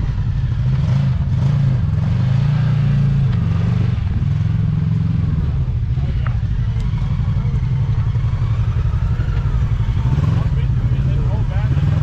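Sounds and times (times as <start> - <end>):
utility vehicle engine under load: 0.0 - 12.0.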